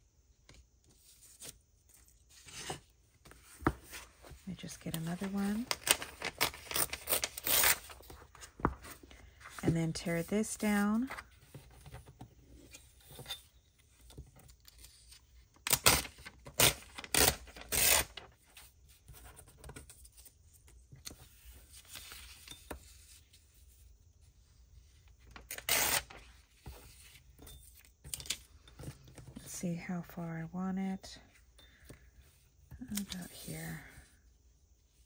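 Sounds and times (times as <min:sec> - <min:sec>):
paper rustling: 0:00.9 - 0:12.2
paper page tearing: 0:05.2 - 0:08.0, 0:15.7 - 0:18.3, 0:25.4 - 0:26.2.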